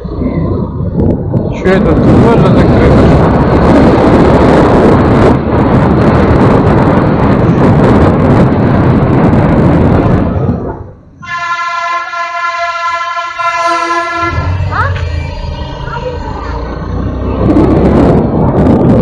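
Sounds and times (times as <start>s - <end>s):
road noise: 0.0s - 19.0s
wind rumble: 0.0s - 19.0s
steady held horn tone: 11.2s - 16.6s.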